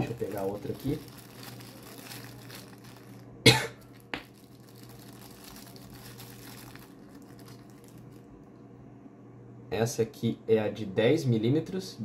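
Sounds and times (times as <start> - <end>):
plastic bag crinkling: 0.0 - 8.4
person coughing: 3.4 - 3.9.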